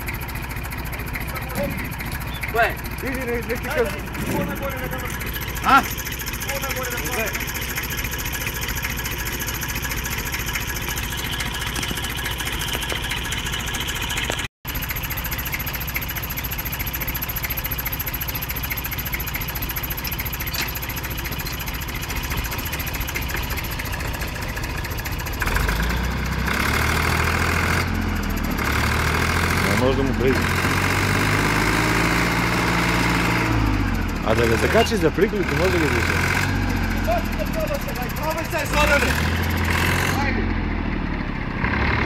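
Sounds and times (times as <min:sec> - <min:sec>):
deeper tractor engine: 0:00.0 - 0:42.0
diesel tractor engine idling: 0:00.0 - 0:42.0.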